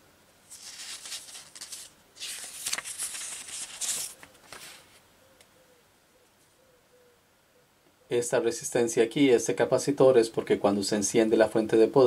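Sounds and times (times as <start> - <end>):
paper rustling and sliding: 0.4 - 5.0.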